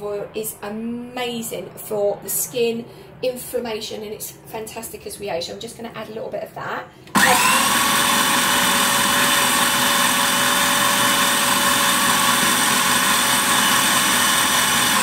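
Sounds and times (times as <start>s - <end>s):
food processor motor whine: 7.1s - 15.0s.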